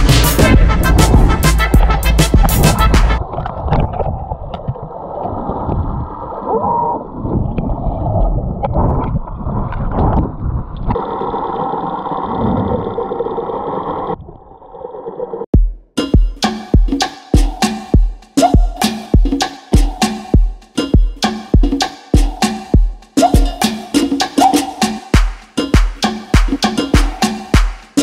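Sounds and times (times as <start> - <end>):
muffled water gurgling: 0.4 - 15.5.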